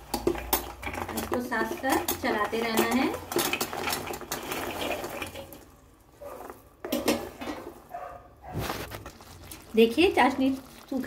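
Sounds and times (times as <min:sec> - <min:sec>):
fried pieces clattering into syrup: 0:00.0 - 0:07.9
spoon stirring and scraping a pan: 0:00.0 - 0:11.0.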